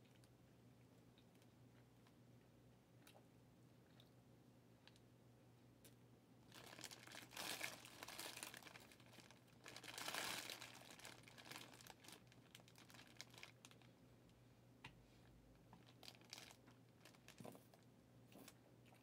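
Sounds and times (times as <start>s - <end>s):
plastic wrapping crinkling: 6.5s - 13.9s, 15.8s - 17.8s.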